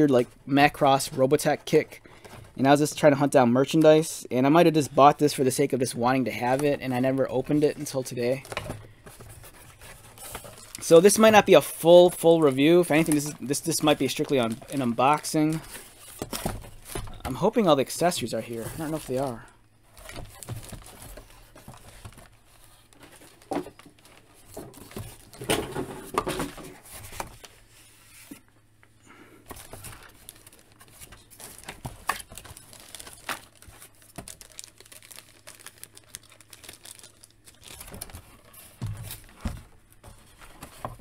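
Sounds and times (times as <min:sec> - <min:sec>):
plastic bag crinkling: 0:06.3 - 0:25.4, 0:29.5 - 0:39.3.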